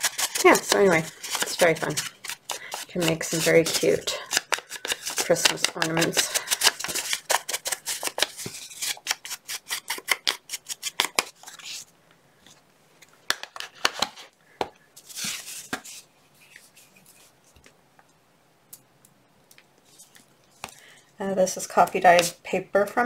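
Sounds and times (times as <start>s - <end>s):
foam tool scrubbing paper: 0.0s - 10.8s.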